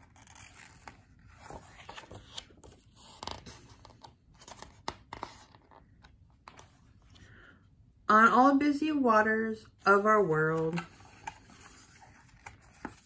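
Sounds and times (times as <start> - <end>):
book pages turning: 0.0 - 7.2, 10.5 - 13.0.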